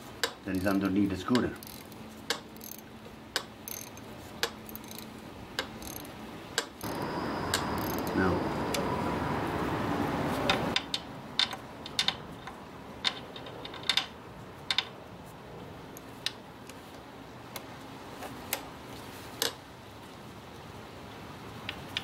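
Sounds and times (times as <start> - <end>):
socket wrench metallic clicks: 3.4 - 8.8.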